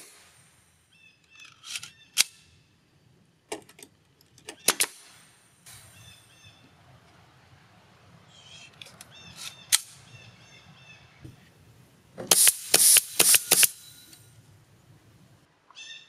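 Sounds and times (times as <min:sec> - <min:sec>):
birds chirping: 0:00.8 - 0:12.3
nail gun firing: 0:04.6 - 0:05.1, 0:12.2 - 0:13.8
air hiss: 0:12.3 - 0:14.0.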